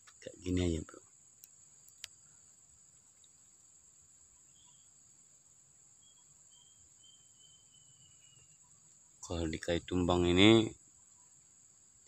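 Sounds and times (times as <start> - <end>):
click: 1.4 - 2.2
high-pitched insect drone: 5.9 - 12.0.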